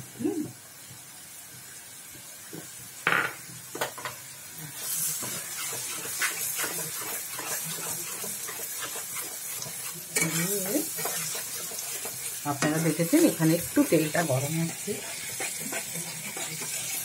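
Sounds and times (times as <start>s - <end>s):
spice paste sizzling: 0.3s - 17.0s
spatula scraping wok: 4.0s - 17.0s
utensil clanking against pan: 5.2s - 12.9s.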